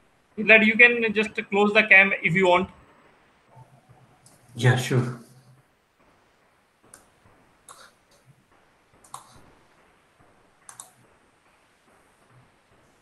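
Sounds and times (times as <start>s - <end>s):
faint computer clicks: 9.0s - 9.4s, 10.6s - 11.1s.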